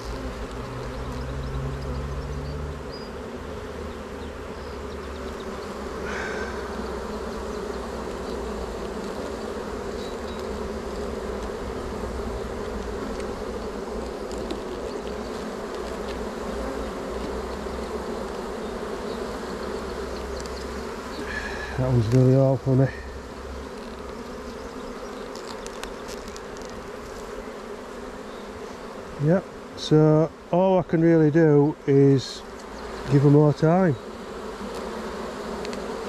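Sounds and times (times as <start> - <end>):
honeybees buzzing: 0.0 - 36.0.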